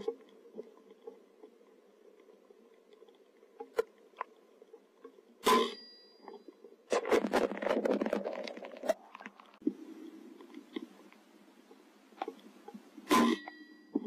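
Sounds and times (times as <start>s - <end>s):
rapid scrabbling and rustling: 6.9s - 9.7s.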